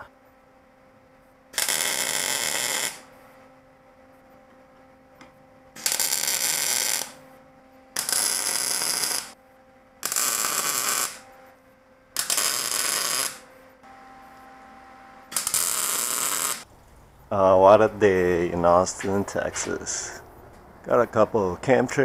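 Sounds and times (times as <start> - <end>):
faint steady hum: 0.0 - 22.0
arc welding on steel: 1.5 - 3.1, 5.8 - 7.2, 8.0 - 9.4, 10.0 - 11.2, 12.2 - 13.5, 15.3 - 16.7.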